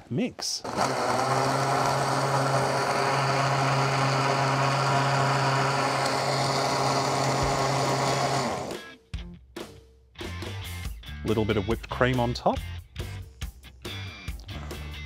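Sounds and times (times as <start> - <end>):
blender crushing ice: 0.6 - 8.8
blender motor winding down: 0.6 - 8.8.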